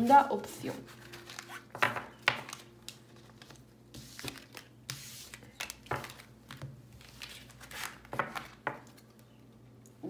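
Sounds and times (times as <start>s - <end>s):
cards sliding and rustling: 2.5s - 8.6s.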